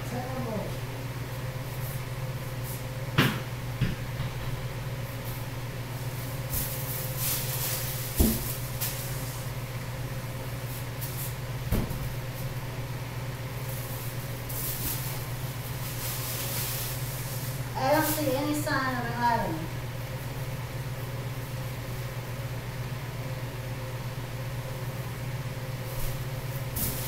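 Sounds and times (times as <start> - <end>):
steady low hum: 0.0 - 27.0
knocks and thumps: 3.2 - 4.6.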